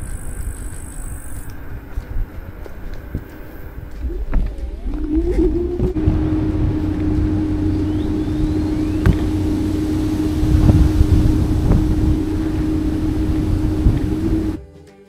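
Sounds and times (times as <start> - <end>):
tyres rumbling on asphalt: 0.0 - 14.6
wind on microphone: 0.0 - 14.6
electric motor whine: 2.9 - 14.6.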